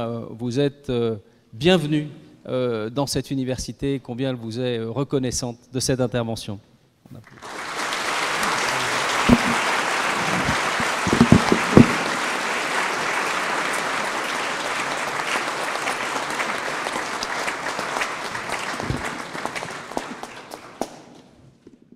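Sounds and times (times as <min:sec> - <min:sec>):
audience applauding: 0:07.2 - 0:21.4
dull knocks: 0:09.3 - 0:09.6, 0:10.3 - 0:12.2.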